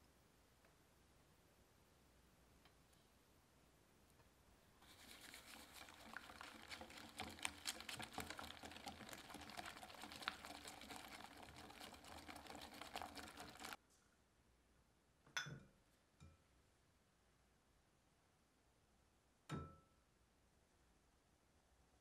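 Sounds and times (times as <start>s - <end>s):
whisk clicking against glass bowl: 5.1s - 13.8s.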